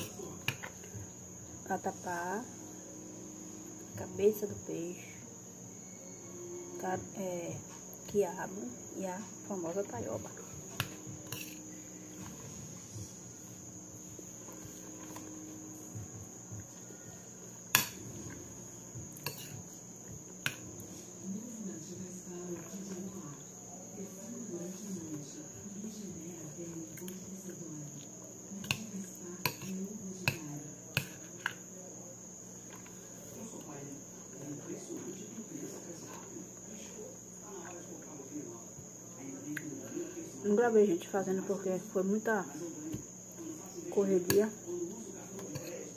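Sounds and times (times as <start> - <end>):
cricket trilling: 0.0 - 45.9
chewing and spoon sounds: 17.5 - 20.9.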